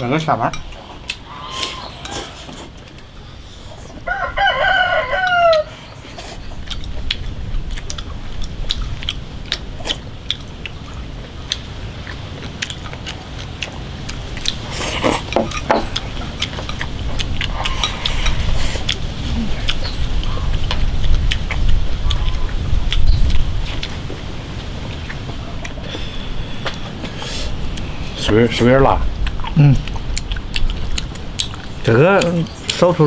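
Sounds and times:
rooster crowing: 4.0 - 5.9.

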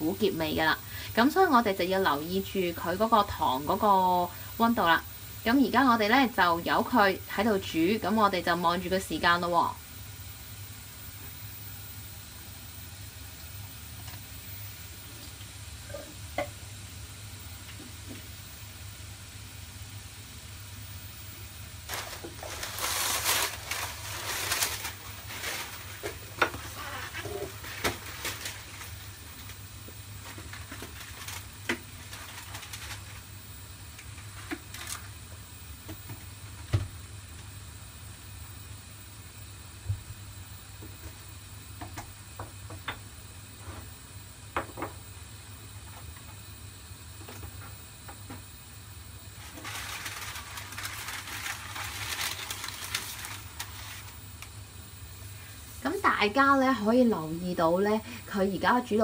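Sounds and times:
crackling hiss and pops: 0.0 - 59.0
steady low hum: 0.0 - 59.0
syrup bubbling and sizzling: 0.5 - 39.6.

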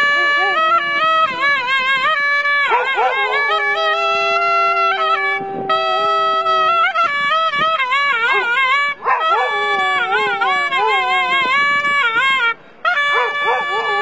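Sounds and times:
music: 0.0 - 14.0
dog howling: 2.7 - 6.8, 8.2 - 11.5, 13.2 - 14.0.

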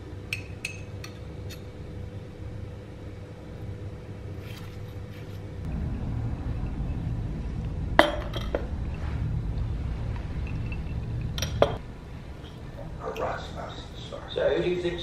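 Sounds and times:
steady low rumble: 5.5 - 15.0
crockery and cutlery clinking: 10.4 - 11.8.

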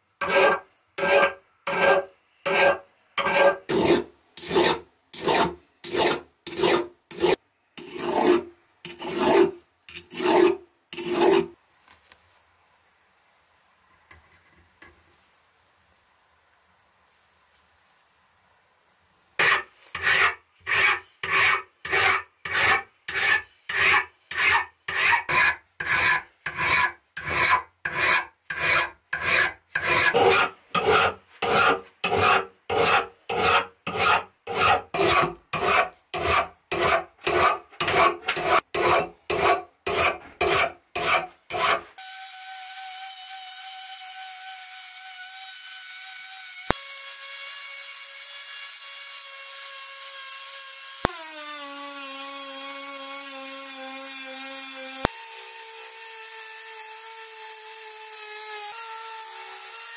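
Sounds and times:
file rasping on steel: 0.2 - 11.6, 19.4 - 42.0.

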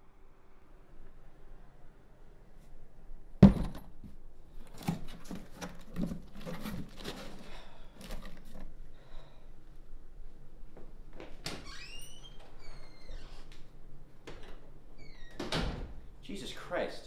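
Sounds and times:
box thudding on table: 3.4 - 4.0
cardboard rustling: 4.6 - 8.8.

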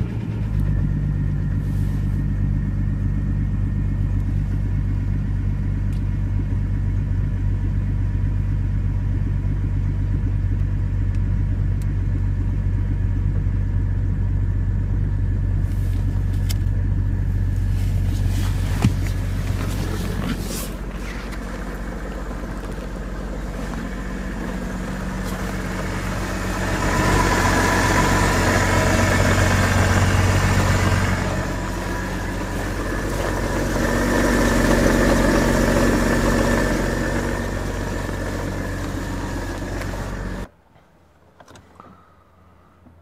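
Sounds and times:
diesel engine running: 0.0 - 40.5.

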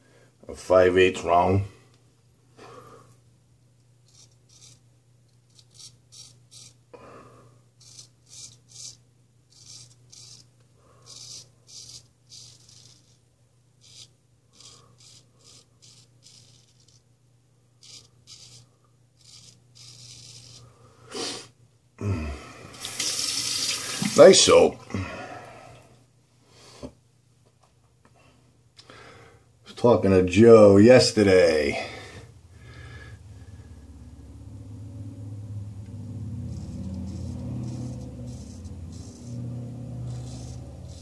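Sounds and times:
straight razor scraping stubble: 4.1 - 4.8, 5.4 - 6.8, 7.8 - 13.2, 13.8 - 17.1, 17.8 - 20.8, 36.3 - 41.0
water running into sink: 22.8 - 24.5.

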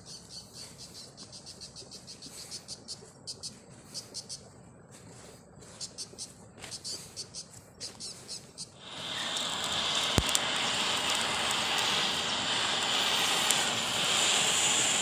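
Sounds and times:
insects chirping: 0.0 - 15.0
blowtorch flame hissing: 8.8 - 15.0.

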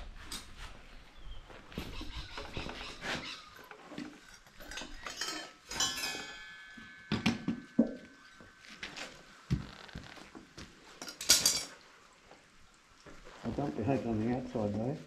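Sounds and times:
metal tools clinking and scraping: 2.4 - 9.5, 10.9 - 11.8
ringing metal strike: 5.7 - 9.4.

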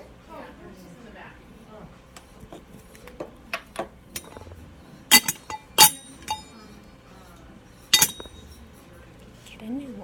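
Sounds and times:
makeup containers clinking: 4.2 - 4.5, 5.1 - 6.5, 8.0 - 8.4.

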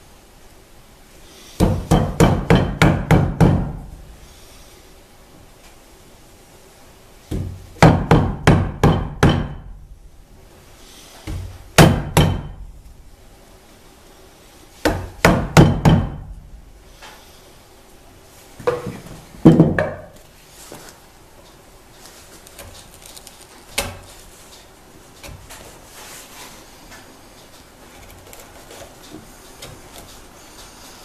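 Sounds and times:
chisel struck into wood: 1.6 - 3.8, 7.3 - 9.7, 11.3 - 12.6, 14.8 - 16.3.

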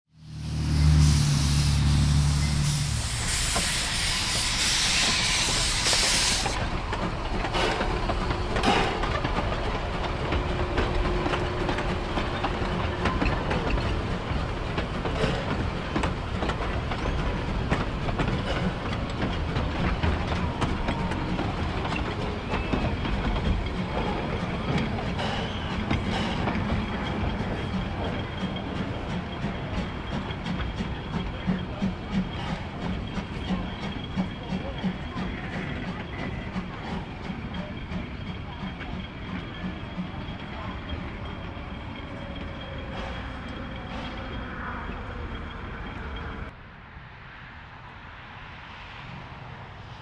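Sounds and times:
train rumbling by: 0.1 - 50.0
steam hissing: 0.2 - 10.3, 11.2 - 38.5
wheels clicking over rail joints: 5.0 - 46.6.

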